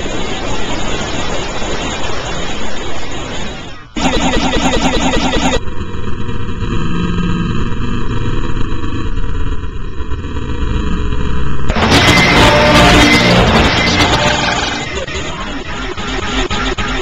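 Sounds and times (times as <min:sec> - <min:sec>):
harsh filtered rumbling noise: 0:00.0 - 0:17.0
stuttering distorted loop: 0:04.0 - 0:17.0.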